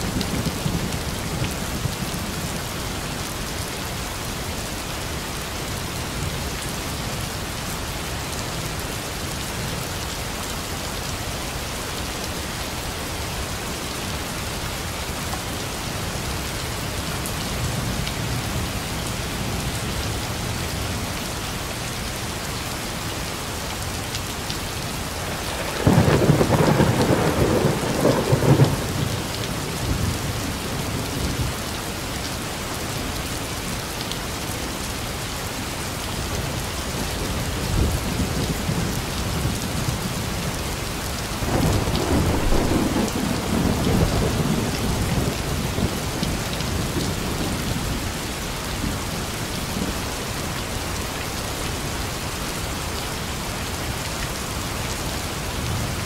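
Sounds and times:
heavy rain falling: 0.0 - 56.0
thunder rolling: 25.3 - 29.2, 41.5 - 44.6.

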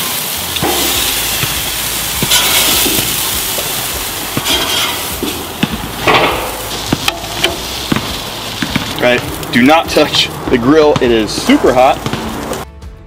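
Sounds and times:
meat sizzling on a grill: 0.0 - 12.6.

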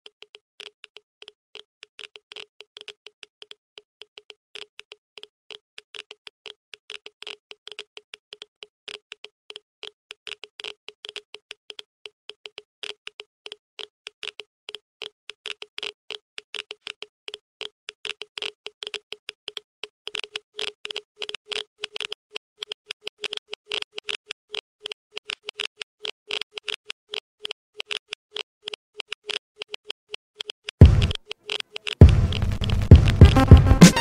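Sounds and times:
rapid sharp clicks: 17.9 - 34.0.

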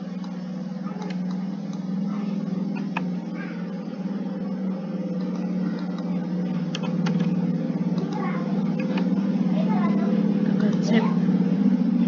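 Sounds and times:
pulsing low motor hum: 0.0 - 12.0
click: 0.2 - 0.4, 7.9 - 9.1.

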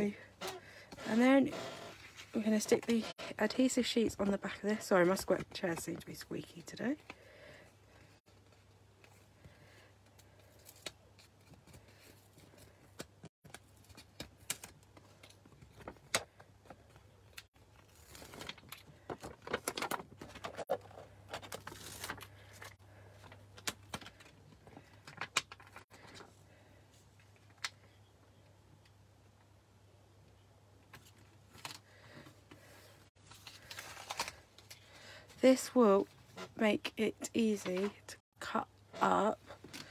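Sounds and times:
paper rustling and crinkling: 8.3 - 26.4, 30.9 - 35.0.

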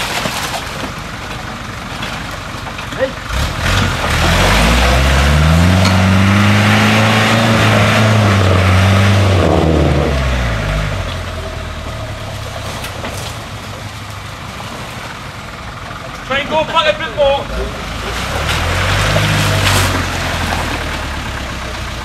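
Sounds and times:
engine revving hard: 3.3 - 11.4, 17.5 - 21.8.

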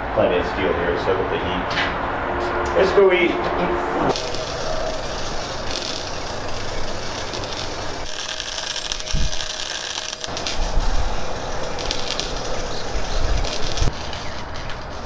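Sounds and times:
welder crackling and sizzling: 4.1 - 15.0.

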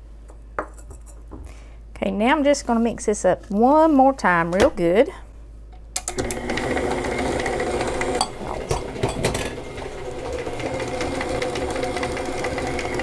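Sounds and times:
stand mixer motor running: 6.1 - 13.0.

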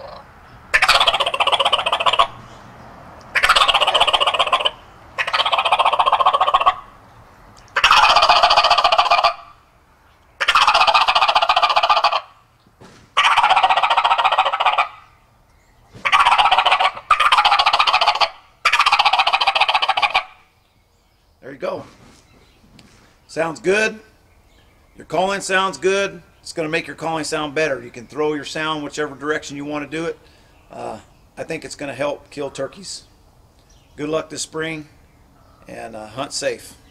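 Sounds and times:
turkey gobbles on mouth call: 0.0 - 2.4, 3.3 - 6.9, 7.7 - 9.6, 10.4 - 12.3, 13.2 - 15.1, 16.0 - 20.4.

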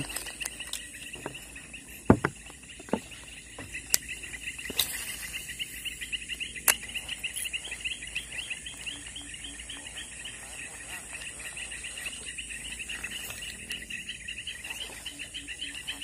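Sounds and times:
sharp knocks and clicks: 0.0 - 4.1
insects chirping: 0.0 - 16.0.

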